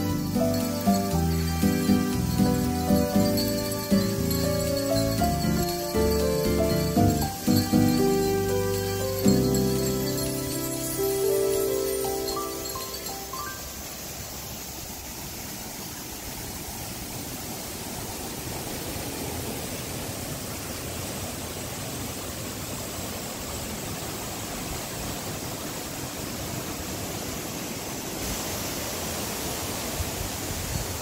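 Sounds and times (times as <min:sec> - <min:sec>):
stream flowing over rocks: 0:00.0 - 0:31.0.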